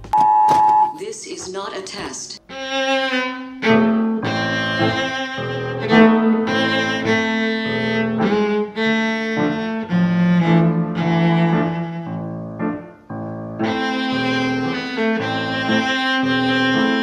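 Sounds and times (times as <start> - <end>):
bowed strings holding notes: 2.5 - 12.9, 13.5 - 17.0.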